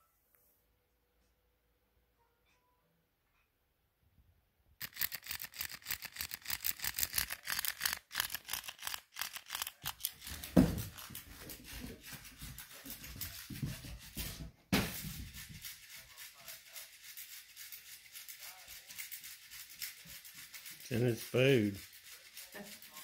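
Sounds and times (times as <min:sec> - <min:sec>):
rubbing and rustling: 0:04.8 - 0:23.0
toy fish flapping on a rug: 0:04.8 - 0:23.0.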